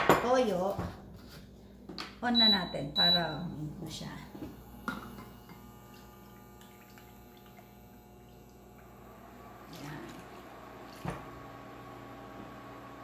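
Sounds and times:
steady electric hum: 0.0 - 13.0
liquid pouring and splashing: 5.8 - 9.0.

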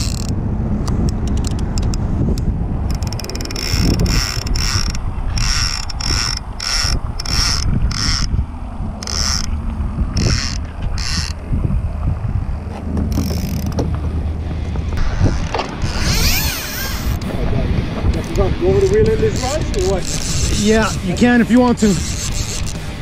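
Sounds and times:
fishing reel ratcheting: 0.0 - 2.0, 2.9 - 8.3, 9.0 - 11.4, 13.1 - 13.8, 15.0 - 17.3, 18.2 - 21.1, 21.8 - 23.0.

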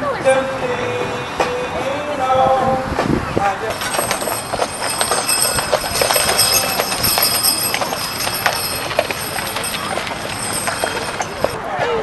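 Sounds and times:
horse hooves clopping: 3.7 - 11.6
wooden wagon rattling: 3.7 - 11.6.

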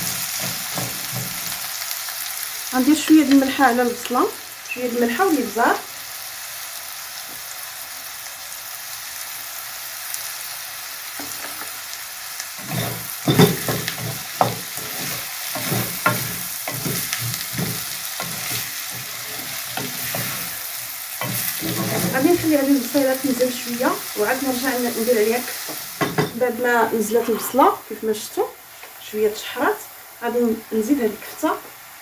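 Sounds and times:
spatula scraping pan: 0.0 - 1.6, 12.6 - 23.2
onions sizzling in oil: 0.0 - 32.0.

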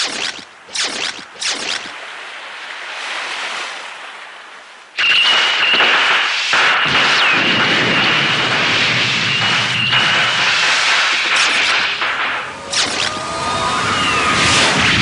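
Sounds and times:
quick swishes: 0.0 - 2.0
loud rushing blast: 5.0 - 15.0
steady high whine: 5.0 - 15.0.

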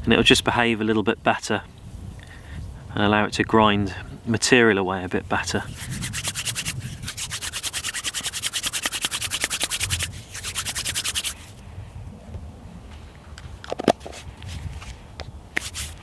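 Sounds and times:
palms rubbing together: 5.4 - 11.5, 14.0 - 16.0.

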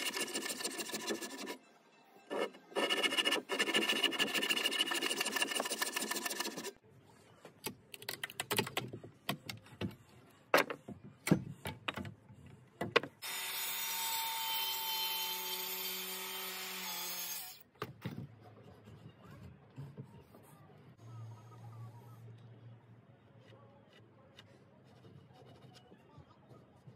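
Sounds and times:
handsaw rasping through wood: 0.0 - 1.6, 2.8 - 6.7.

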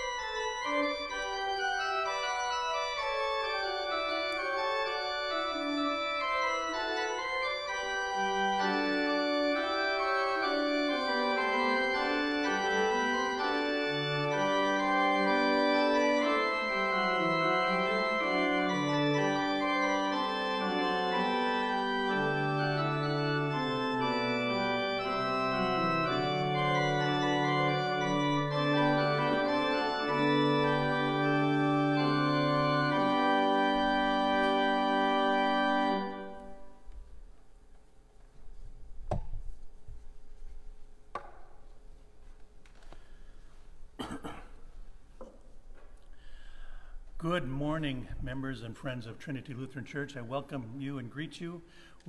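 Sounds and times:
organ bass notes: 0.0 - 36.8
organ playing held chords: 0.0 - 37.0, 46.3 - 52.0.

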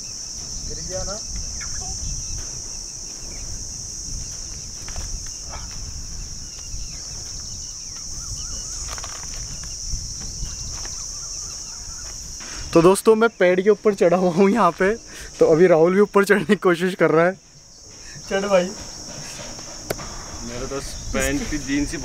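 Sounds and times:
wind on microphone: 0.0 - 13.0, 17.6 - 22.0
insects shrilling: 0.0 - 22.0.

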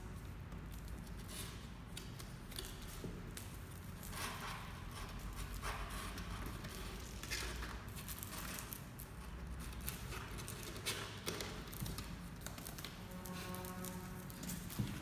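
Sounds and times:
claws scratching cardboard: 3.9 - 15.0.

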